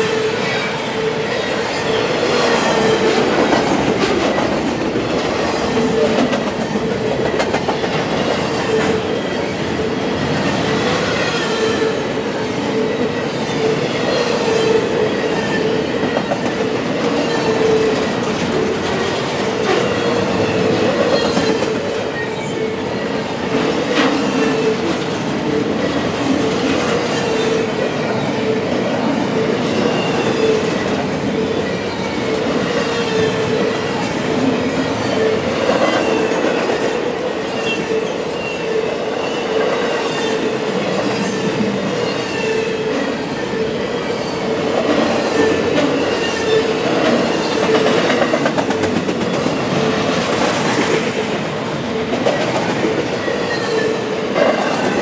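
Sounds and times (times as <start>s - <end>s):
train wheels clattering over rails: 1.8s - 9.3s, 44.6s - 55.0s.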